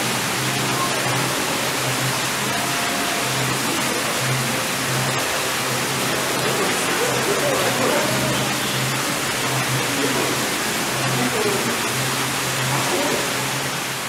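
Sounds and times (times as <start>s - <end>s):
steady rushing noise: 0.0s - 14.0s
faint distant voices: 2.6s - 13.8s.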